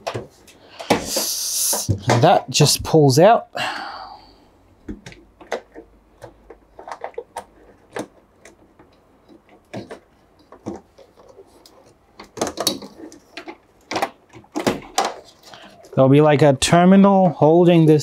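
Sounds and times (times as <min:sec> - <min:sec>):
plastic and metal parts clicking: 0:04.9 - 0:16.0.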